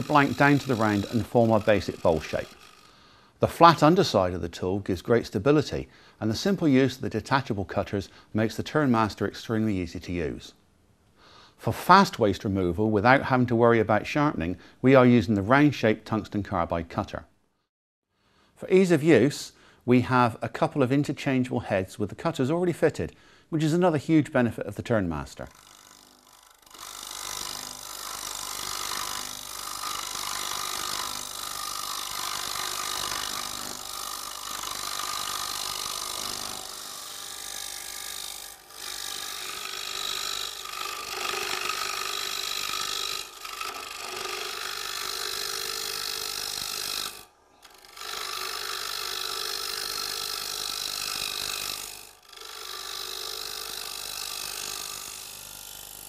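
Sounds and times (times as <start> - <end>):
lathe tool scraping wood: 0.0 - 3.9, 25.5 - 56.0.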